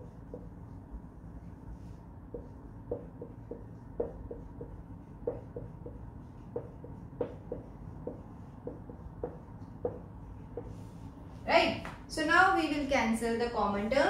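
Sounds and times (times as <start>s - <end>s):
marker tapping on whiteboard: 0.0s - 0.6s, 2.2s - 10.8s.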